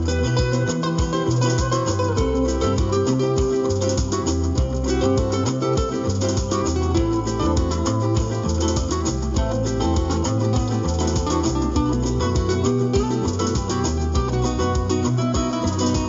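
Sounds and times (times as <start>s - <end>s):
acoustic guitar picking: 0.0s - 16.0s
low bass line: 0.0s - 16.0s
percussive beat: 0.0s - 16.0s.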